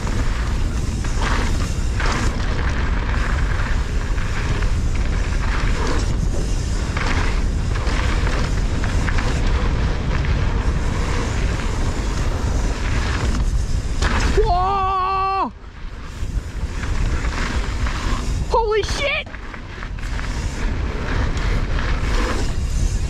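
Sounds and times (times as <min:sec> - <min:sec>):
bike knocking and rattling: 0:00.0 - 0:23.0
tyres rumbling on dirt: 0:00.0 - 0:23.0
wind rushing over microphone: 0:00.0 - 0:23.0.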